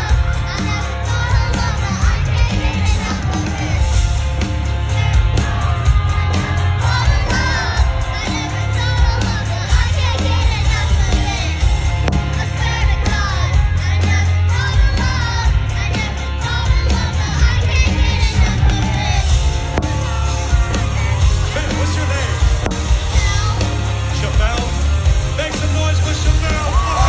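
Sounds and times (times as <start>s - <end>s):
crowd yelling: 0.0s - 12.6s, 25.2s - 27.0s
live rock band playing: 0.0s - 27.0s.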